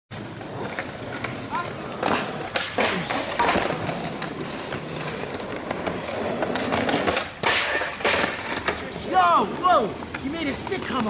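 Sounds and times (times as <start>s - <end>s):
skateboard clacking on ground: 0.1s - 11.0s
skateboard wheels rolling on asphalt: 0.1s - 11.0s.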